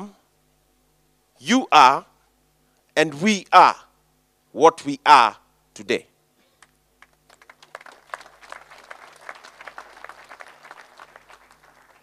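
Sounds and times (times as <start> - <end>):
audience applause: 7.0 - 12.0.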